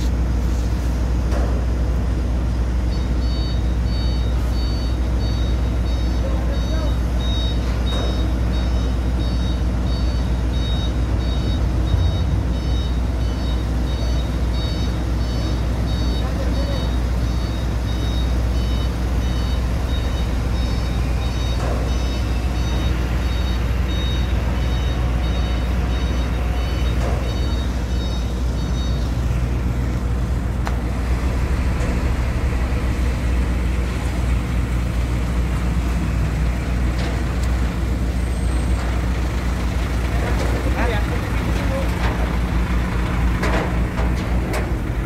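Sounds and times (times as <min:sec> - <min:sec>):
diesel engine rumbling: 0:00.0 - 0:45.0
electronic warning beep: 0:02.9 - 0:29.8.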